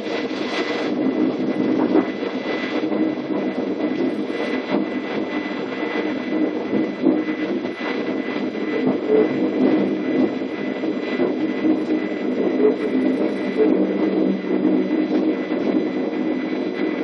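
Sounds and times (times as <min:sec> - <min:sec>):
high whine: 0:00.0 - 0:17.0.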